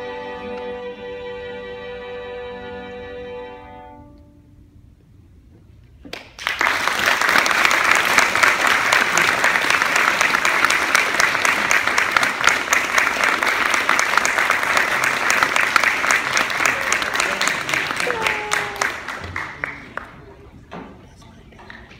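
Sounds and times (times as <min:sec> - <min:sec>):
audience applause: 0:06.1 - 0:20.5.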